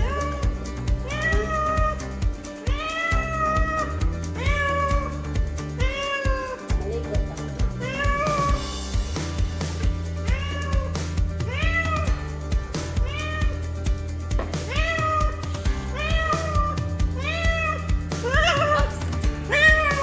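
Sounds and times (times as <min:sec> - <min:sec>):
cat meowing: 0:00.0 - 0:05.2, 0:05.8 - 0:06.6, 0:07.8 - 0:08.6, 0:10.2 - 0:12.1, 0:13.0 - 0:13.6, 0:14.6 - 0:20.0
background music with steady beat: 0:00.0 - 0:20.0.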